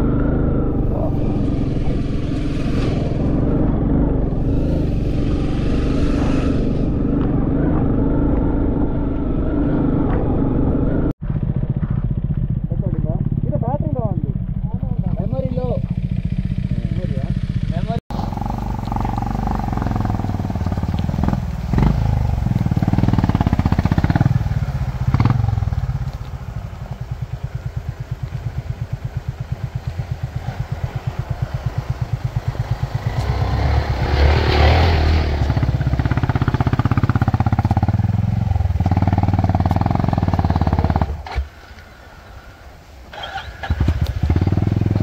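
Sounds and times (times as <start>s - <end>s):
motorcycle engine revving: 0.0s - 42.1s, 43.0s - 45.0s.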